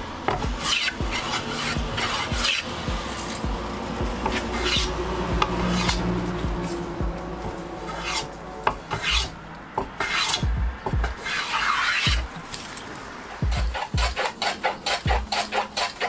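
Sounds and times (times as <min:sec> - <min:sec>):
hand tool scraping wooden board: 0:00.3 - 0:03.4, 0:04.2 - 0:06.8, 0:07.9 - 0:10.4, 0:11.1 - 0:12.8, 0:13.5 - 0:16.0.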